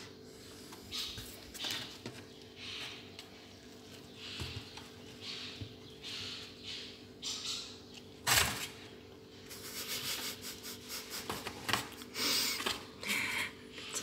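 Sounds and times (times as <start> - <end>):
kittens scratching cardboard: 0.0 - 6.6, 9.4 - 12.9.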